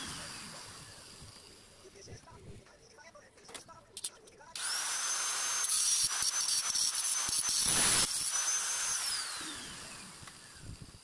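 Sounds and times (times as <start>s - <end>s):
electric disc grinder whining: 0.0s - 1.8s, 4.6s - 11.0s.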